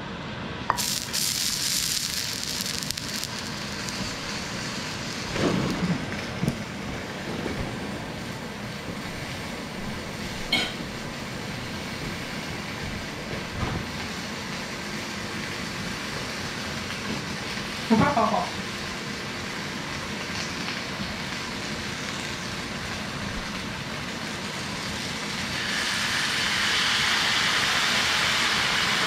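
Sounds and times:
chicken sizzling in skillet: 0.7s - 29.0s
pan and utensils thumping: 10.5s - 10.8s.

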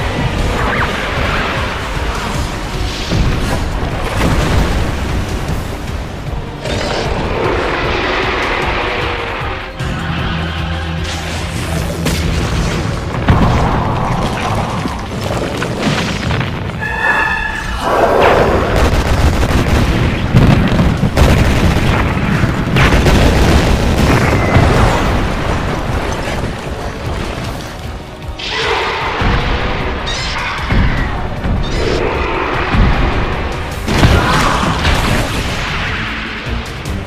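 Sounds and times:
dramatic background music: 0.0s - 37.0s
heavy explosion booms: 18.2s - 27.4s.

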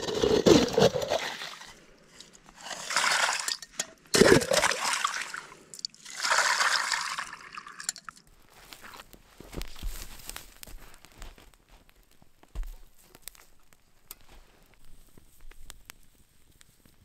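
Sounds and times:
water sloshing as pot fills: 2.6s - 8.2s
water pouring into pot: 4.2s - 8.2s.

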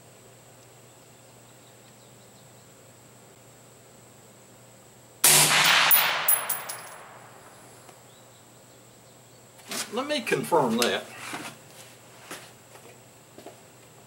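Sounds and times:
suppressed rifle shot: 5.2s - 7.6s.

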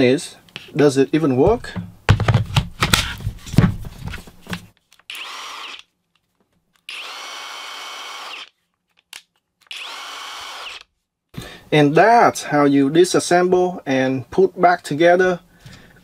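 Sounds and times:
impact wrench motor whining: 5.1s - 5.9s, 6.9s - 8.5s, 9.6s - 10.9s.

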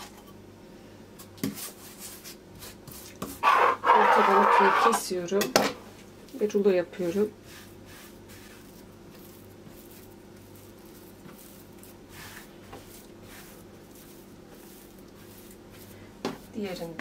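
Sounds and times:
quiet steady hum: 0.0s - 17.0s
hands brushing and patting dough: 1.4s - 3.3s, 6.4s - 17.0s.

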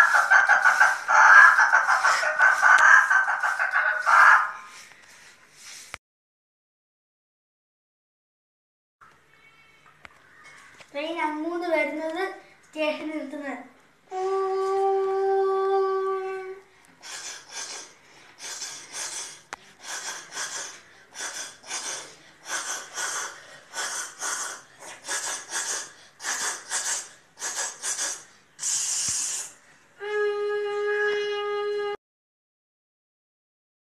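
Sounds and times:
boy imitating train chugging: 0.0s - 4.4s, 15.0s - 32.0s
vocal hiss: 0.0s - 4.9s, 17.0s - 30.1s.

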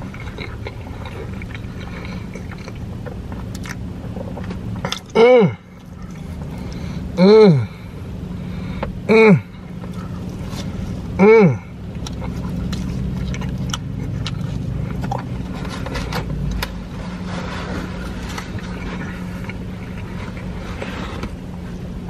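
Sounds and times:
person chewing with wet smacking: 0.0s - 6.9s, 11.7s - 16.9s, 17.9s - 21.9s
low car hum: 0.0s - 22.0s
person humming mmm: 5.1s - 5.8s, 7.1s - 7.9s, 9.1s - 9.6s, 11.2s - 11.8s.

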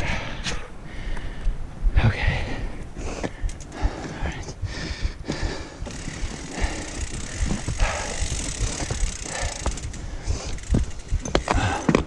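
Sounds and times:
bike tyres on dirt: 2.8s - 12.0s
bike knocks and rattles: 5.2s - 12.0s.

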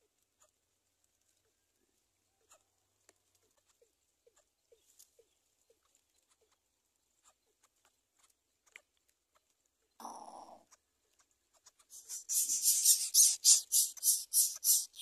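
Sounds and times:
faint short chirps: 12.0s - 15.0s.

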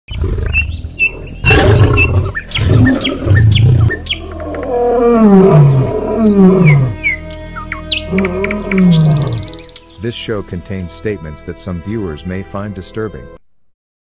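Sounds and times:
bird chirps: 0.1s - 10.2s
lion roaring: 0.2s - 7.0s, 8.1s - 9.5s.

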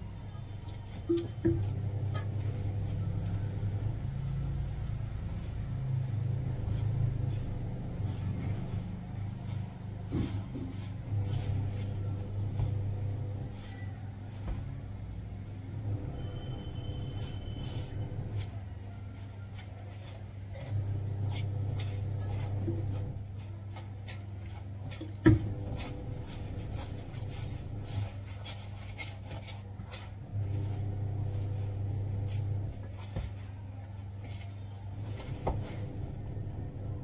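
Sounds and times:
dough kneading in steel bowl: 0.0s - 37.0s
steady low hum: 0.0s - 37.0s.

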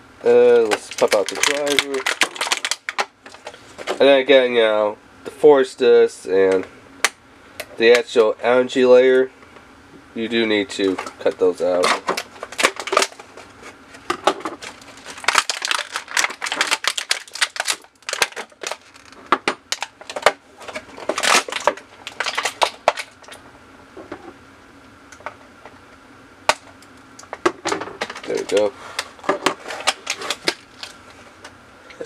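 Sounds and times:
plastic packaging clicks and snaps: 0.6s - 4.0s, 11.0s - 13.2s, 14.6s - 23.4s, 26.5s - 27.4s, 28.0s - 31.0s.

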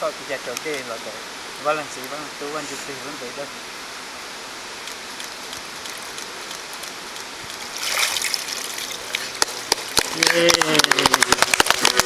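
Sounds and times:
shallow rocky creek rushing: 4.2s - 12.0s
water splashing: 4.9s - 12.0s.

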